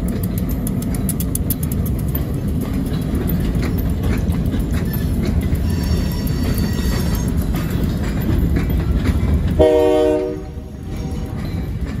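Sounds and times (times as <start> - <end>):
freight train rumbling: 0.0 - 12.0
wheels clicking over rail joints: 0.0 - 12.0
train horn: 9.6 - 11.4.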